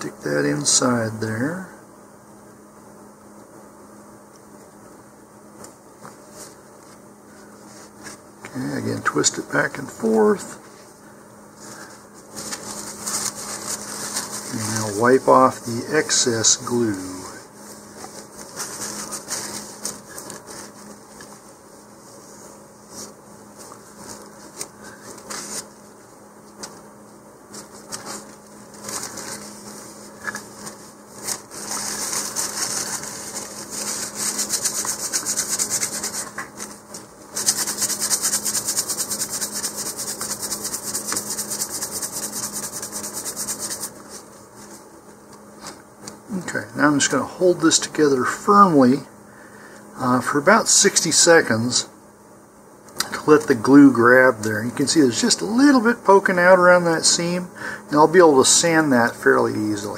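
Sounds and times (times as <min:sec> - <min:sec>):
tissue rubbing on tube: 0:11.6 - 0:26.0, 0:27.5 - 0:44.9.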